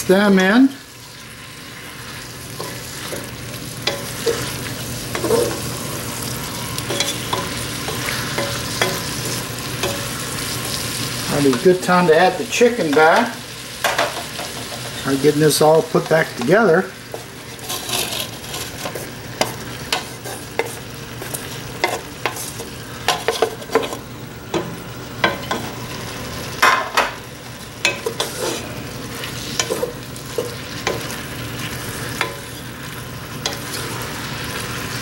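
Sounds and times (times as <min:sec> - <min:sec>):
food sizzling: 0:00.0 - 0:35.0
wooden spoon scraping pot and plate: 0:03.9 - 0:05.7, 0:17.1 - 0:24.0, 0:27.8 - 0:31.2.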